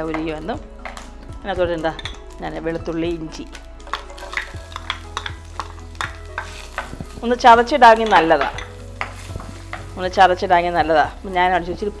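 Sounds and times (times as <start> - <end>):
food sizzling: 0.0 - 12.0
spatula tapping frying pan: 1.8 - 2.3, 3.5 - 10.2.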